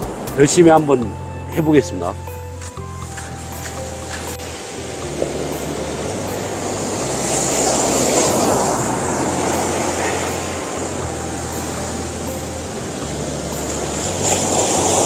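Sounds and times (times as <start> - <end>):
surf breaking on beach: 3.4 - 15.0.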